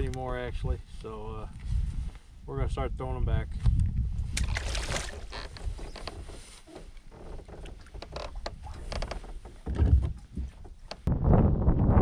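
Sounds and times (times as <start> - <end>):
low thud: 8.5 - 11.6.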